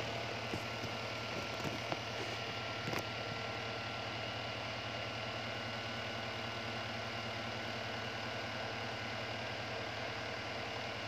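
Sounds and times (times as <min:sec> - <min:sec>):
electric fan whirring: 0:00.0 - 0:04.4.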